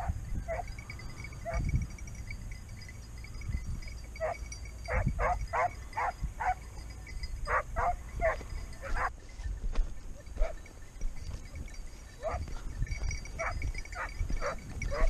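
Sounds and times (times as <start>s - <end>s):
hunting dogs baying: 0.0s - 9.2s, 10.0s - 15.0s.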